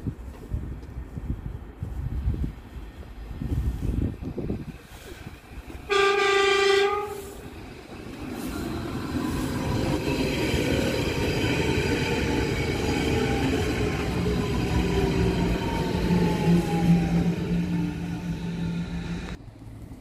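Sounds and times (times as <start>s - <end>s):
train wheels rumbling on rails: 0.0s - 20.0s
train horn blast: 5.9s - 7.4s.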